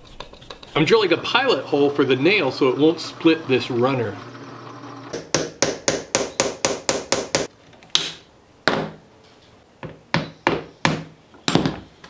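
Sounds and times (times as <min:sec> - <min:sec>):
hammer tapping a nail into wood: 0:05.2 - 0:08.1.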